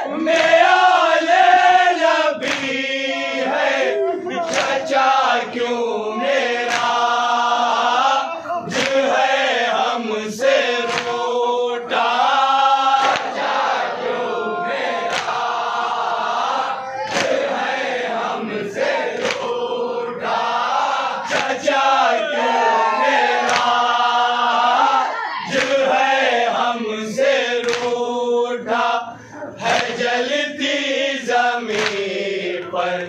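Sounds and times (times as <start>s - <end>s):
men chanting a lament: 0.0s - 33.0s
sharp chest slaps: 6.7s - 7.0s, 10.8s - 11.3s, 15.1s - 15.4s, 27.6s - 28.0s.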